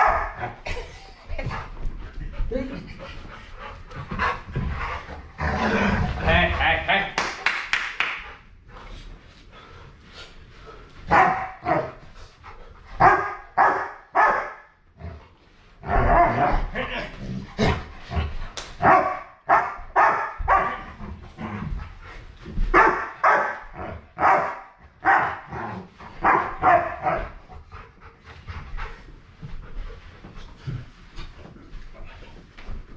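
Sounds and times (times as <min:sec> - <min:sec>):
dog barking: 0:11.1 - 0:11.9, 0:13.0 - 0:14.6, 0:18.8 - 0:20.8, 0:22.8 - 0:23.6, 0:24.2 - 0:25.5, 0:26.2 - 0:27.2.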